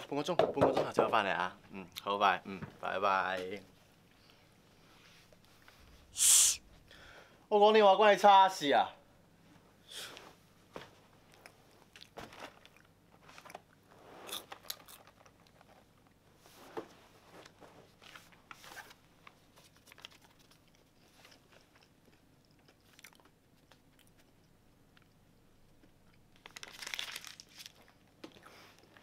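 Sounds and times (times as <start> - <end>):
chewing popcorn: 11.3 - 16.2, 19.3 - 29.0.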